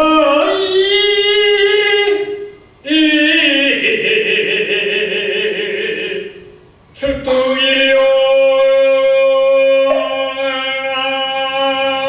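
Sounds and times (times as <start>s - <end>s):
monk chanting: 0.0s - 12.0s.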